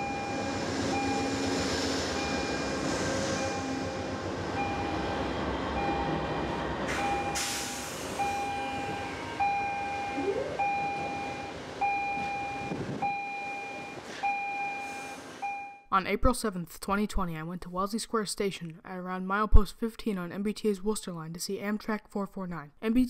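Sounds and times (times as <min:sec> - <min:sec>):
train wheels rumbling: 0:00.0 - 0:15.4
steady electronic beep: 0:08.2 - 0:15.8.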